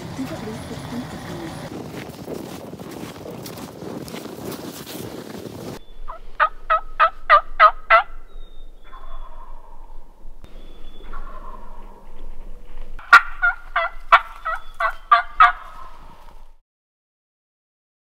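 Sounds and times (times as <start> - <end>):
turkey yelping: 6.0 - 10.0, 10.9 - 12.2, 13.0 - 16.5.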